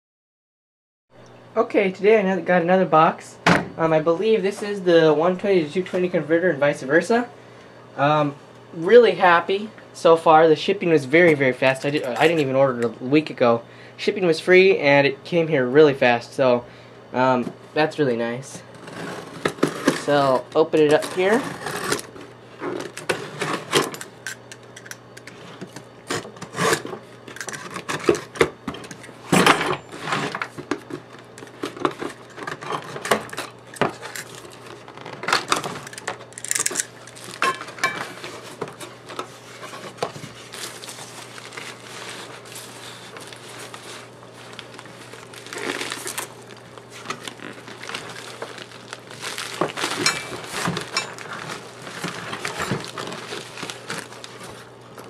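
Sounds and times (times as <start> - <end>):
packing peanuts rustling: 20.0 - 22.2, 29.9 - 55.0
blade slitting packing tape: 22.8 - 29.2, 31.2 - 37.4, 40.5 - 54.7.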